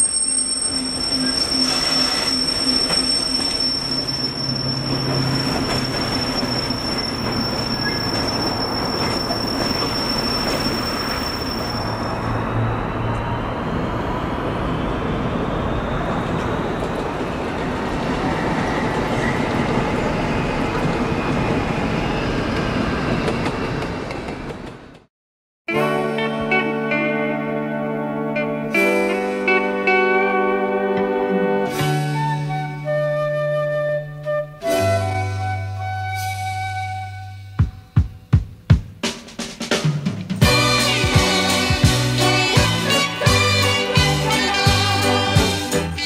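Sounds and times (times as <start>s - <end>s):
train wheels squealing: 0.0s - 16.8s
train wagons rumbling and clattering: 0.0s - 25.1s.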